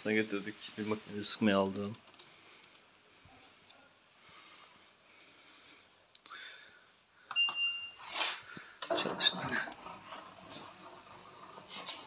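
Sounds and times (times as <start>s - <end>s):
clicks: 1.6s - 2.9s
washing machine beep: 7.3s - 8.1s.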